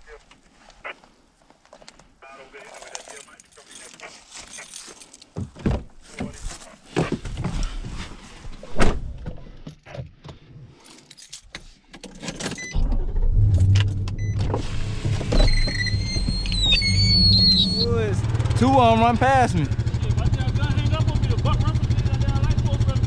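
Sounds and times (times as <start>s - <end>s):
truck engine running: 17.2s - 23.0s.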